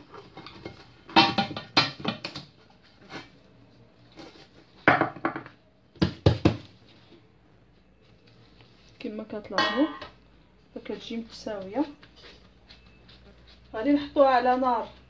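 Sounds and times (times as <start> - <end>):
metal pans knocking and scraping: 0.0 - 3.3, 9.5 - 10.2.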